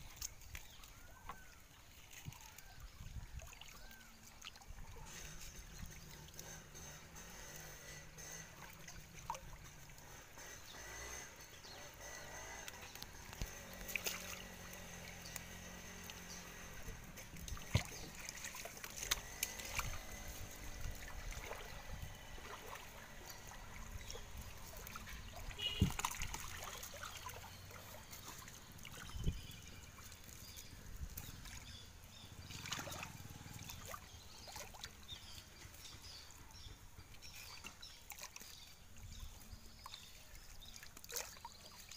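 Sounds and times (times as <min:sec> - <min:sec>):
water splashing and dribbling: 0:00.0 - 0:41.9.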